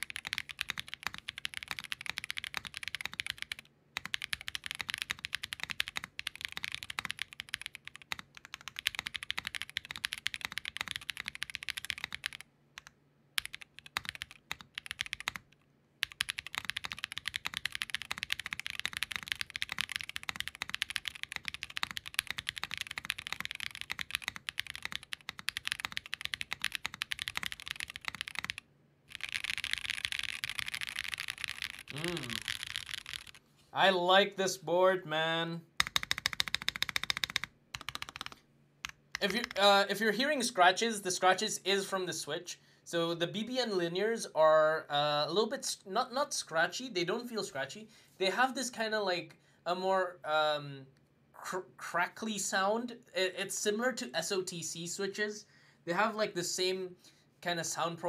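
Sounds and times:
fast typing on mechanical keyboard: 0.0s - 33.4s, 35.8s - 39.6s.

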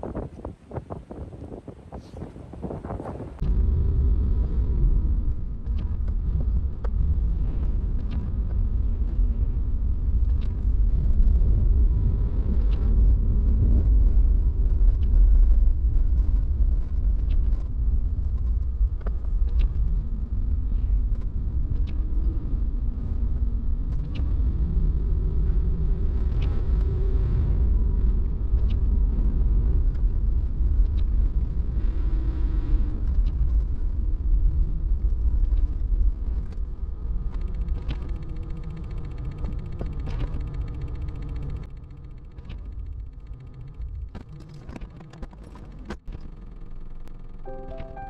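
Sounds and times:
faint ticks: 35.0s - 45.2s.

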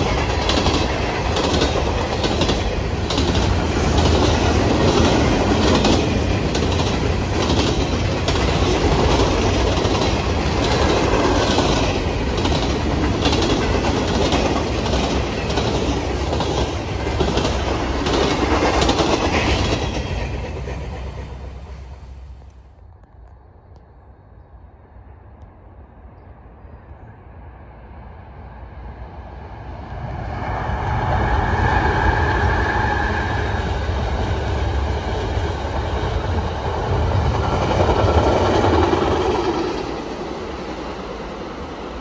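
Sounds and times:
train wheels clacking over rail joints: 0.0s - 21.4s.

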